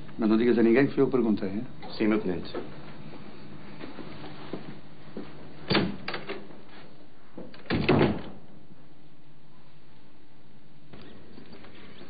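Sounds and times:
door shutting with a knock: 0:07.6 - 0:08.4.

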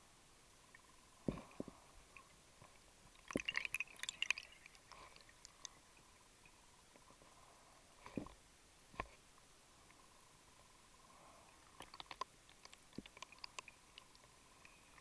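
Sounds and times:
sharp crackling clicks: 0:11.8 - 0:14.8.

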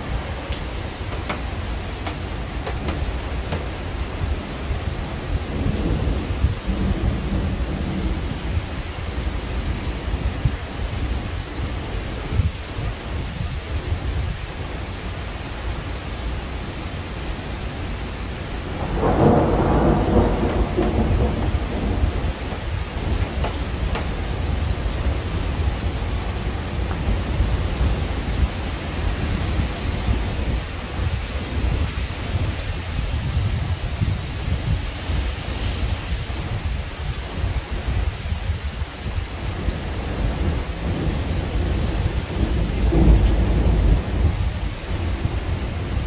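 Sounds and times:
thunder rumbling: 0:00.0 - 0:11.2, 0:18.6 - 0:35.3, 0:39.5 - 0:46.0
steady rain: 0:00.0 - 0:46.0.

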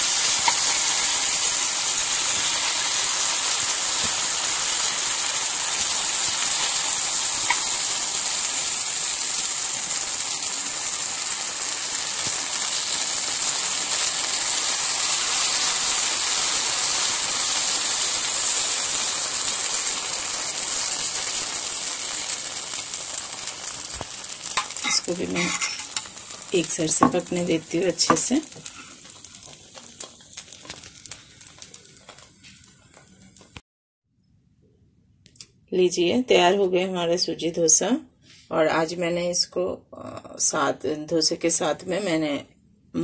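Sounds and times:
batter sizzling in oil: 0:00.0 - 0:33.6.

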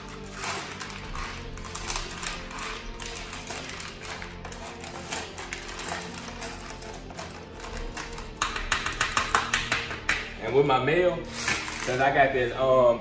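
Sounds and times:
background music: 0:00.0 - 0:13.0
kibble clicking against metal pan: 0:00.4 - 0:10.2.

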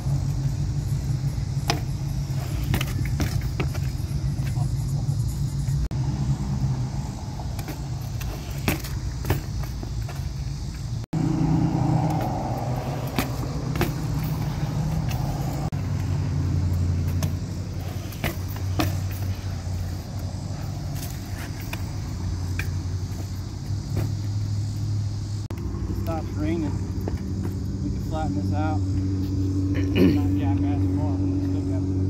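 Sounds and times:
motor vehicle humming: 0:00.0 - 0:32.0
bike knocks and clicks on concrete: 0:01.0 - 0:04.7, 0:07.4 - 0:11.0, 0:12.0 - 0:16.2, 0:17.0 - 0:20.3, 0:20.9 - 0:24.4, 0:27.0 - 0:27.8.

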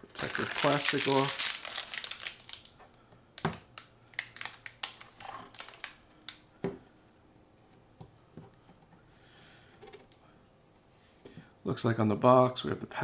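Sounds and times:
plastic film crinkling: 0:00.1 - 0:02.8, 0:03.8 - 0:06.0.

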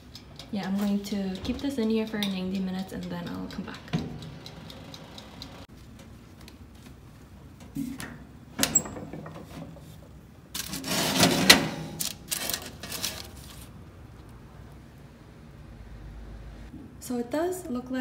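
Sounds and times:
metal oven door clanking open: 0:07.8 - 0:10.0, 0:10.8 - 0:12.0.

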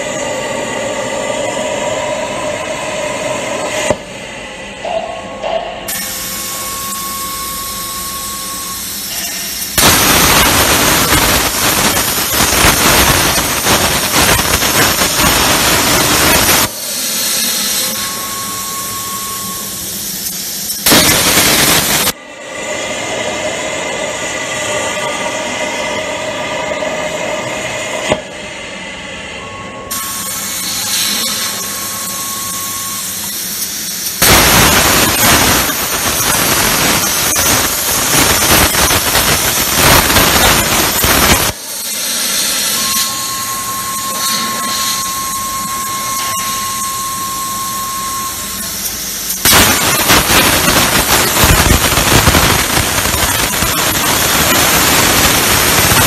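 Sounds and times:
thin steady whistle: 0:06.1 - 0:09.5, 0:17.8 - 0:19.8, 0:31.1 - 0:33.3, 0:42.8 - 0:48.8
plasma torch hissing and crackling: 0:08.6 - 0:22.2, 0:29.9 - 0:56.0.

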